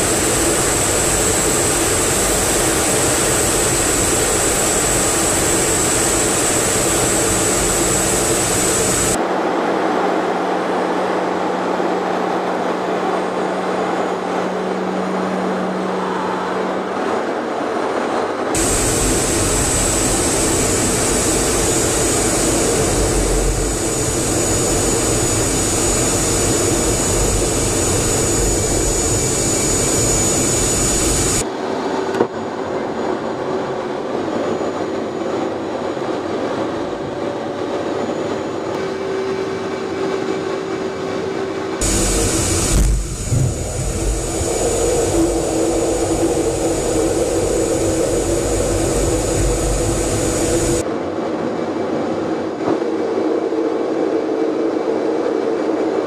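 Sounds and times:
high-pitched whine: 0.0s - 9.5s, 18.5s - 50.9s
jet engine and airflow noise: 0.0s - 56.0s
low steady hum: 18.6s - 31.4s, 41.8s - 50.8s.

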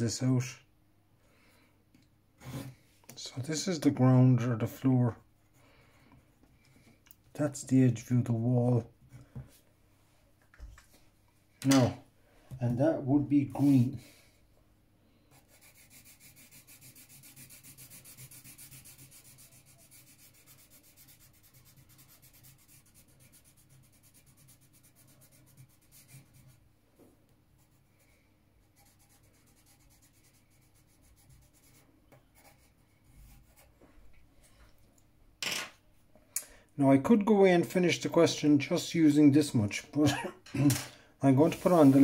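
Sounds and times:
pencil shading on paper: 15.3s - 26.6s, 27.6s - 33.7s.

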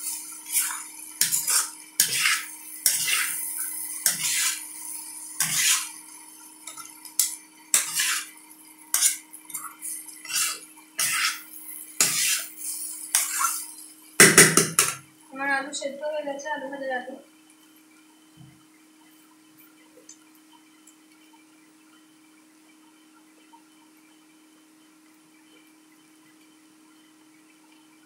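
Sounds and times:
metal spatula scraping frying pan: 0.0s - 13.9s
potatoes frying: 0.0s - 17.9s.

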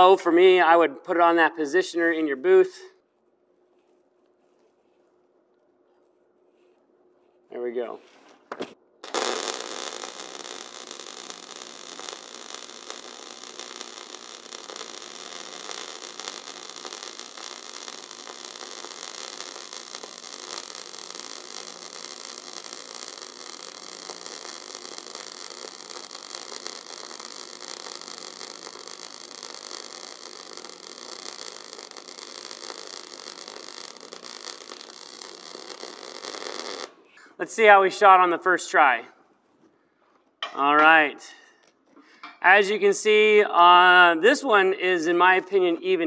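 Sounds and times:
welding arc crackling: 9.0s - 38.1s.

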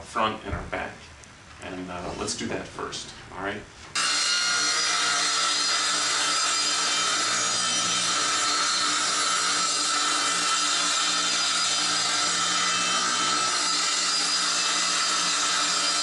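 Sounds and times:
circular saw cutting wood: 4.0s - 16.0s.

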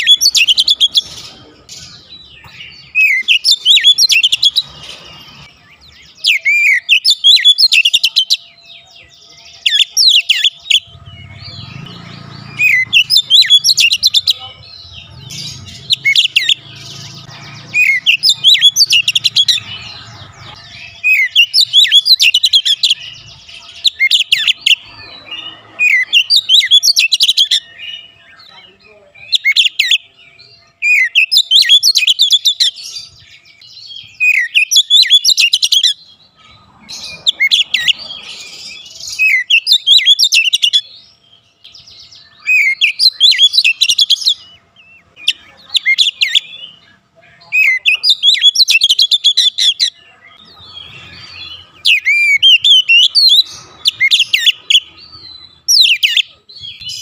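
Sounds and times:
bird singing whistled phrases: 2.8s - 4.6s, 6.1s - 8.4s, 47.5s - 50.5s, 55.7s - 57.0s.

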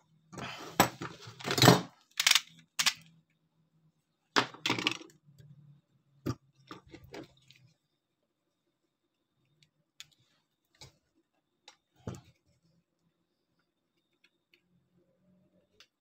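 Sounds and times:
metal motor parts clinking and scraping: 0.8s - 3.0s.

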